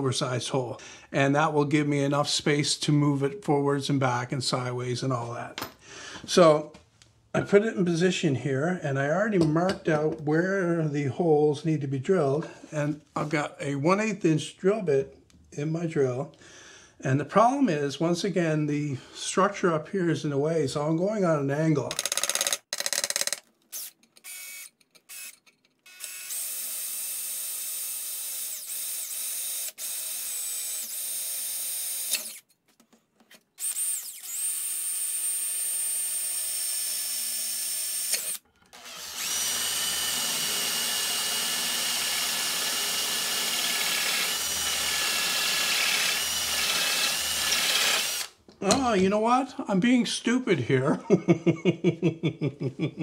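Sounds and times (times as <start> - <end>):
cordless drill whining: 23.2 - 32.5, 33.6 - 48.4.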